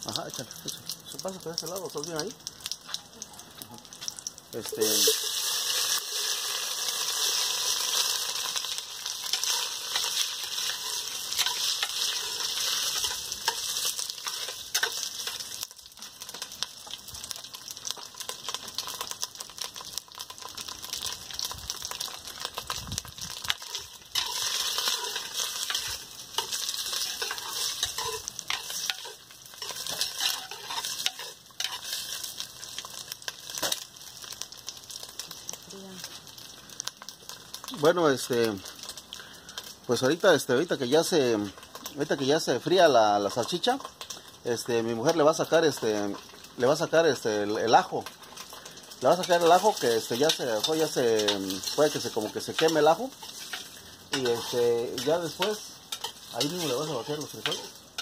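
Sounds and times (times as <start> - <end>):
sausage sizzling in hot oil: 0.0 - 58.0
spoon scraping and clicking: 23.6 - 32.0.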